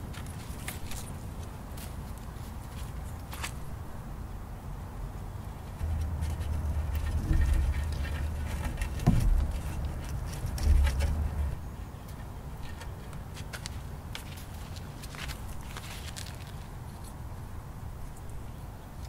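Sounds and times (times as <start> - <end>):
rope rubbing on wood: 5.7 - 11.6.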